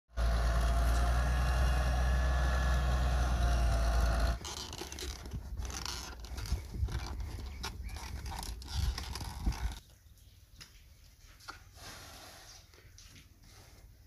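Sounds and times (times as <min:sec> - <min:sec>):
excavator engine humming: 0:00.1 - 0:04.9
irregular clicks and scrapes: 0:03.7 - 0:09.9.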